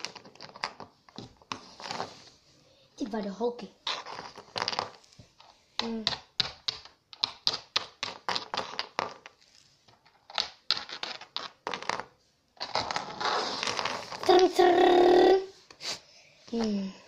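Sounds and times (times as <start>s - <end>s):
plastic figurines tapping on floor: 5.8s - 12.1s.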